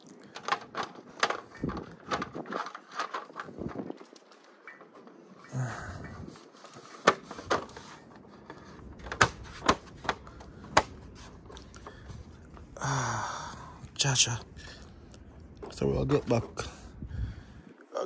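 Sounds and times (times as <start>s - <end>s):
plastic clicks and knocks: 0.3s - 5.2s, 6.0s - 12.2s.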